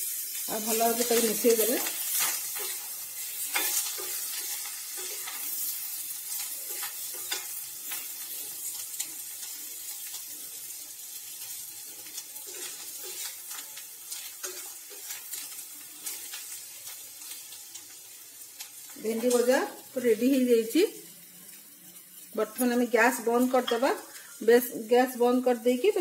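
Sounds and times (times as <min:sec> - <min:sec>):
okra sizzling in a pan: 0:00.0 - 0:26.0
spatula scraping a pan: 0:01.0 - 0:10.3, 0:11.2 - 0:17.5.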